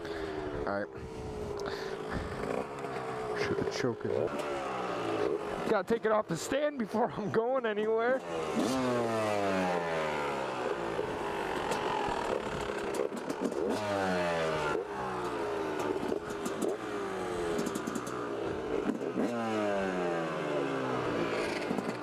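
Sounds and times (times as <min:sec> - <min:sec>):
motorcycle engine revving: 0:00.0 - 0:22.0
clatter: 0:10.6 - 0:19.8, 0:21.2 - 0:22.0
sharp mechanical clicks: 0:11.6 - 0:14.0, 0:15.7 - 0:16.8, 0:17.5 - 0:18.2.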